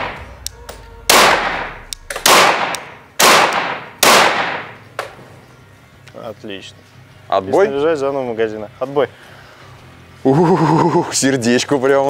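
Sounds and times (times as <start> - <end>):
pistol shots echoing: 0.0 - 0.4, 1.1 - 4.9.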